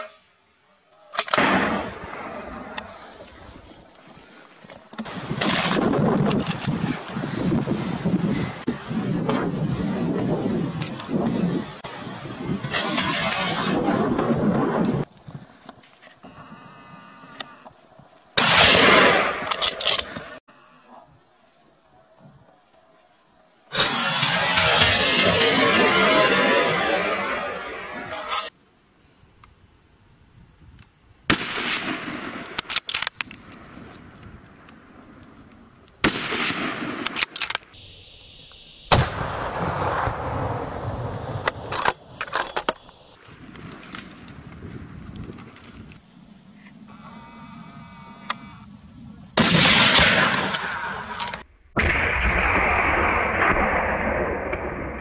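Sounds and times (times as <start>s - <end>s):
sharp cracks: 1.1s - 7.4s, 12.7s - 16.2s, 18.4s - 20.4s, 23.7s - 28.6s, 30.6s - 37.8s, 49.4s - 55.0s
sharp gunshot cracks: 1.2s - 3.0s, 18.4s - 20.3s, 31.3s - 33.6s, 36.0s - 37.8s, 38.9s - 40.8s, 49.4s - 55.0s
gunshot blast: 1.3s - 3.0s, 12.6s - 15.0s, 18.4s - 19.6s, 23.8s - 28.5s, 31.3s - 32.7s, 36.0s - 37.5s, 38.9s - 41.7s, 49.4s - 51.1s, 51.7s - 55.0s.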